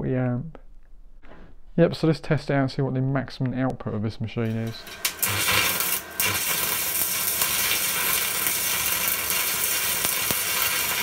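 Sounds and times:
welding arc crackling: 4.5s - 11.0s.

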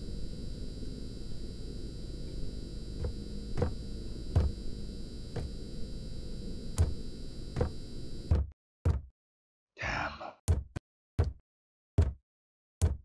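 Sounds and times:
low steady hum: 0.0s - 8.3s.

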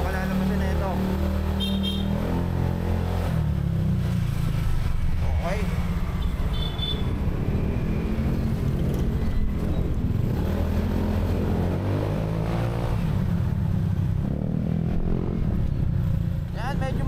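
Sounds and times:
motorcycle engine rumbling: 0.0s - 11.7s.

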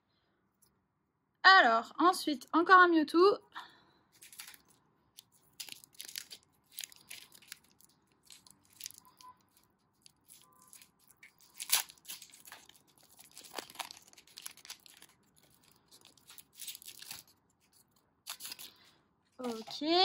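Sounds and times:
foil wrapper tearing and crinkling: 4.2s - 18.8s.

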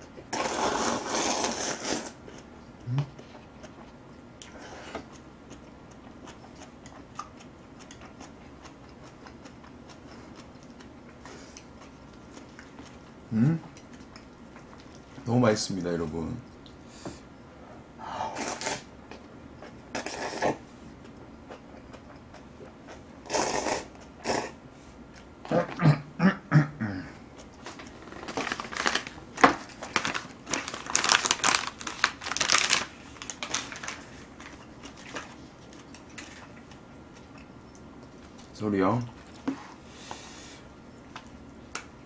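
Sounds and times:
person slurping and chewing noodles: 0.2s - 10.6s, 18.3s - 18.9s, 19.9s - 20.6s, 21.5s - 24.6s.

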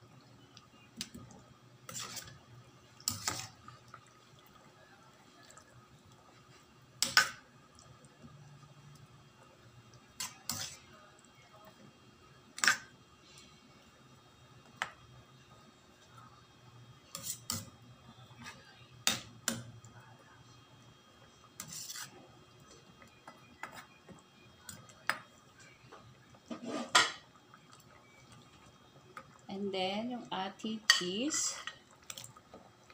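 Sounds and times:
ladle clinking and scraping pan: 26.5s - 27.2s.

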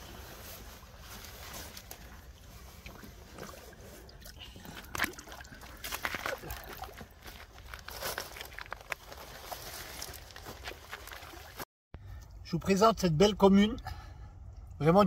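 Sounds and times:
water sloshing and dripping: 0.3s - 11.6s.

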